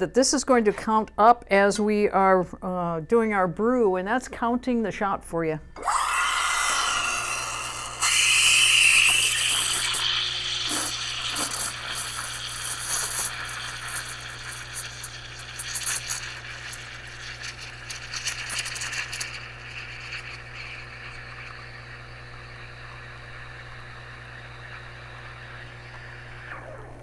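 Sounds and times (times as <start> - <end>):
espresso machine pump humming: 5.8 - 27.0
espresso streaming into cups: 5.8 - 27.0
hissing water: 5.8 - 27.0.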